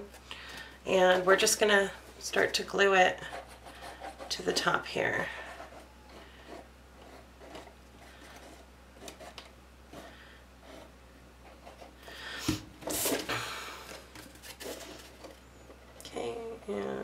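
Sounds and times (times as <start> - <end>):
cardstock rustling: 13.9 - 15.4.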